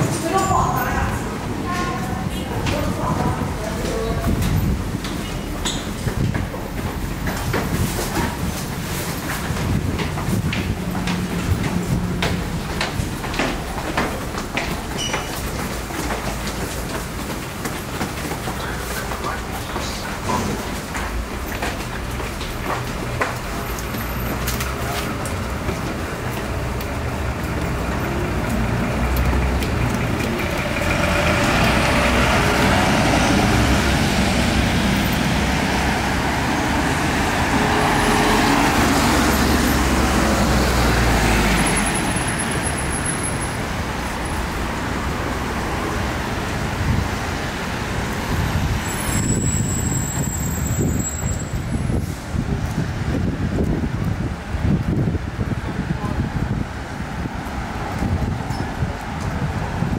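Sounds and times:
road traffic hum: 0.0 - 59.9
heavy vehicle rumbling past: 8.7 - 14.9, 22.6 - 53.4.

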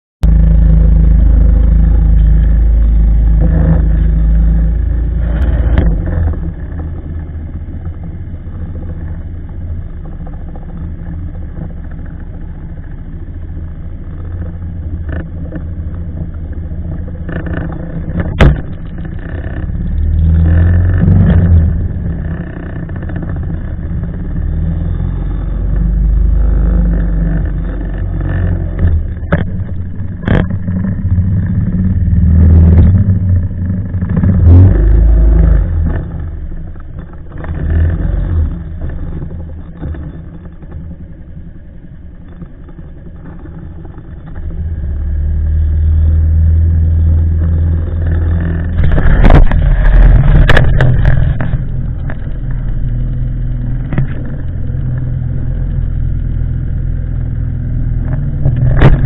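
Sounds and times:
motorboat engine rumbling: 0.2 - 59.0.

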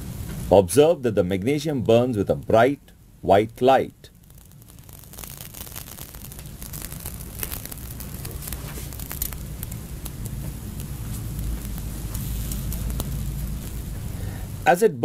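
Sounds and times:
burning metal fizzing and crackling: 0.0 - 14.8.

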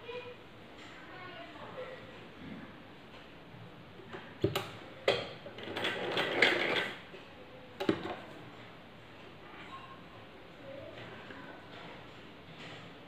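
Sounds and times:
sewing machine stitching clatter: 5.6 - 7.0.

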